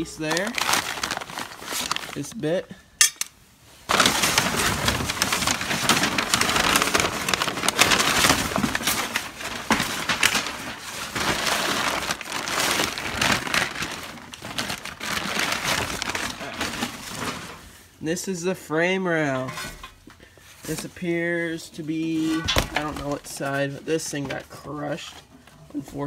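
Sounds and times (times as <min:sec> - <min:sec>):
packing paper rustling and crumpling: 0:00.0 - 0:02.5, 0:03.9 - 0:17.8, 0:21.9 - 0:25.3.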